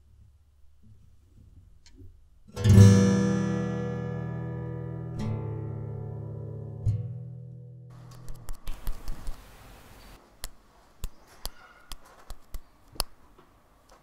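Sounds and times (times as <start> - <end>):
guitar chord ringing: 2.5 - 7.9.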